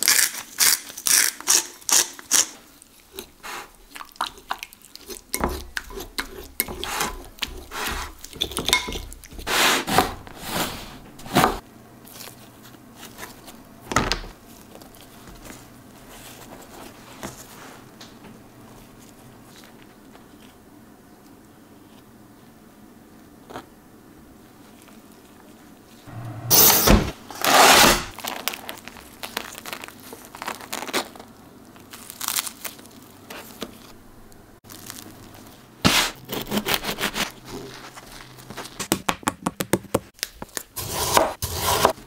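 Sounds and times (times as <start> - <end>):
knife sawing through crusty bread: 6.3 - 8.2, 35.9 - 38.0, 40.8 - 41.9.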